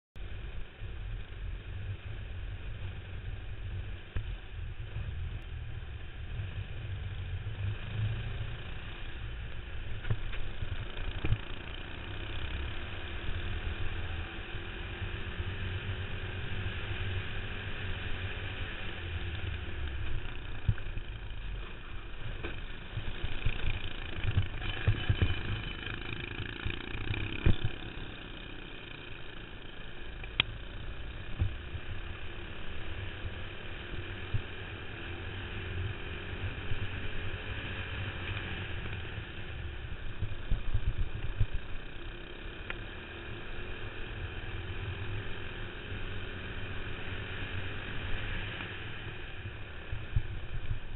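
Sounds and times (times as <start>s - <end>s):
kart engine revving: 22.4s - 29.7s
wind rumbling on microphone: 35.9s - 42.0s, 49.0s - 50.9s.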